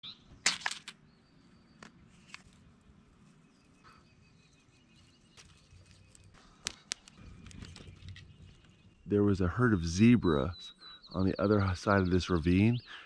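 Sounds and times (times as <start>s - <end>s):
distant bird chirps: 0.0s - 13.0s
dry twigs snapping: 0.4s - 1.0s, 5.3s - 8.3s.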